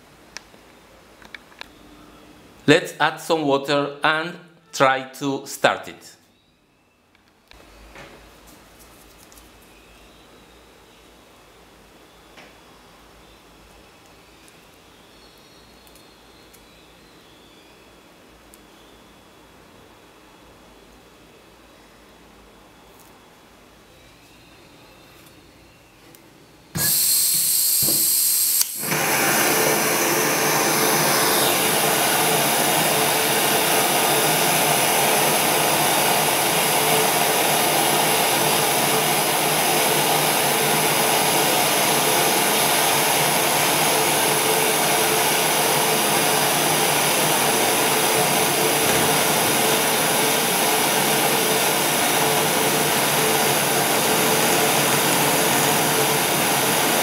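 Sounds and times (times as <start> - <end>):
torch ignition click: 26.8 - 31.8
gas hissing from valve: 26.8 - 57.0
torch flame rushing hiss: 26.8 - 57.0.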